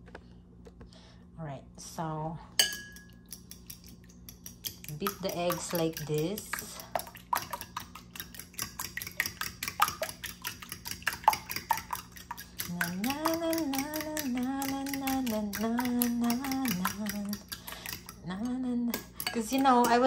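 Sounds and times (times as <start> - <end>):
fork whisking eggs in bowl: 2.6 - 20.0
person humming a tune: 12.6 - 20.0.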